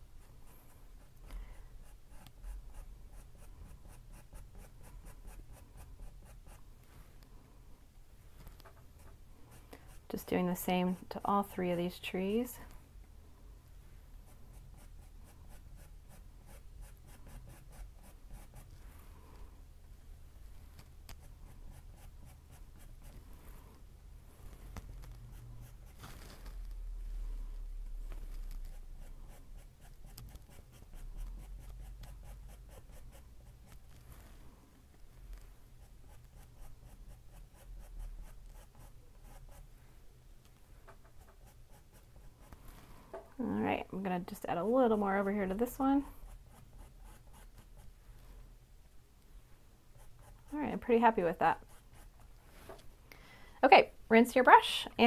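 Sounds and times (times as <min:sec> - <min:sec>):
paintbrush scratching on canvas: 0:00.0 - 0:07.1, 0:08.6 - 0:11.8, 0:14.1 - 0:19.1, 0:20.6 - 0:26.8, 0:28.1 - 0:34.5, 0:35.2 - 0:39.8, 0:41.0 - 0:43.0, 0:43.8 - 0:48.4, 0:49.9 - 0:52.8
low room hum: 0:00.0 - 0:55.0
paintbrush dabbing on canvas: 0:14.2 - 0:18.9.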